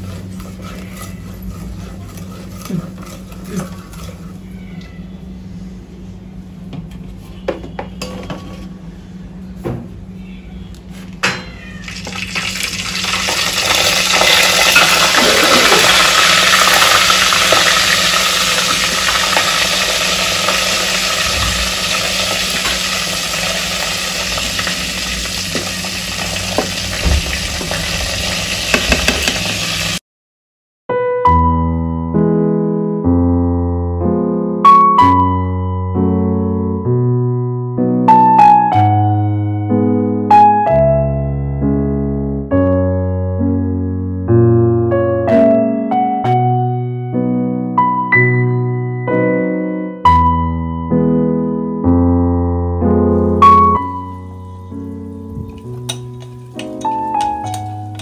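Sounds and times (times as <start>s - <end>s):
wooden spoon scraping a pot: 0.0s - 4.6s
nuts sizzling in hot fat: 11.8s - 30.0s.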